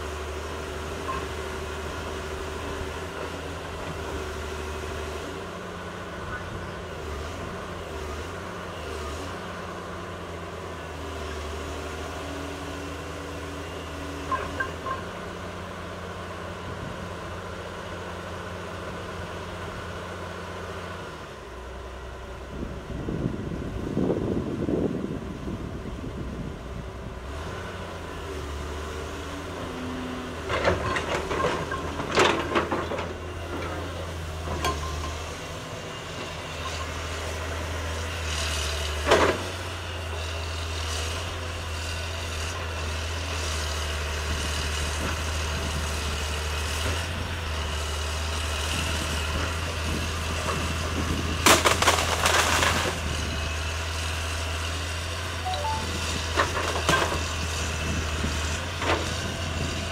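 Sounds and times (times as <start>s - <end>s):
excavator diesel engine running: 0.0s - 59.9s
trees cracking and crashing: 51.4s - 53.0s.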